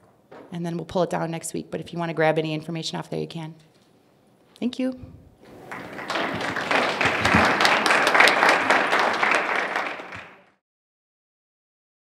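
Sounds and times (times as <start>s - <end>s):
audience applauding: 5.5s - 10.6s.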